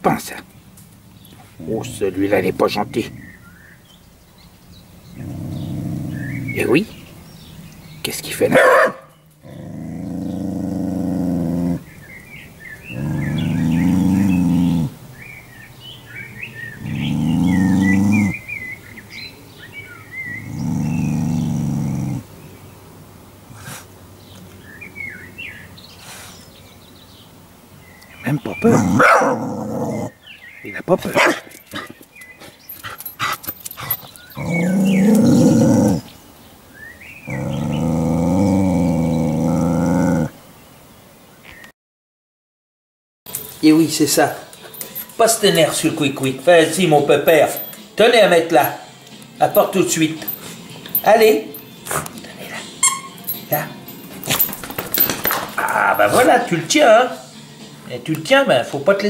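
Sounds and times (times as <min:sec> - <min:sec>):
small birds chirping: 0:00.0 - 0:41.7, 0:43.3 - 0:59.0
dog growling: 0:01.4 - 0:03.6, 0:05.0 - 0:07.5, 0:09.4 - 0:12.0, 0:12.6 - 0:15.3, 0:16.4 - 0:18.6, 0:20.1 - 0:22.3, 0:28.5 - 0:30.2, 0:32.8 - 0:36.2, 0:37.2 - 0:40.4, 0:51.8 - 0:56.3.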